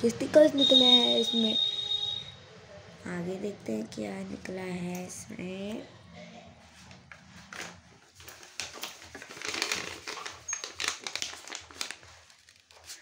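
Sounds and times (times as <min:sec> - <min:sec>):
paper rustling and crinkling: 0:06.8 - 0:13.0.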